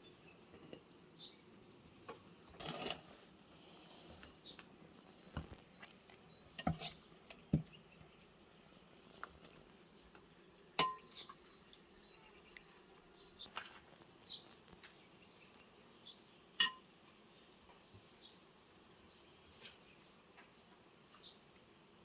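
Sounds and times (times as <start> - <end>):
kitchenware clinking: 0.2 - 0.9, 16.6 - 16.8.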